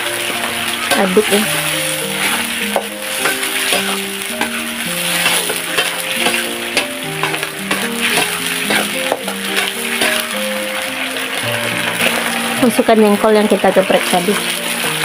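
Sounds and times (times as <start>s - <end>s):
melodic background music: 0.0s - 15.0s
sauce sizzling: 0.0s - 15.0s
metal spatula scraping wok: 0.1s - 15.0s.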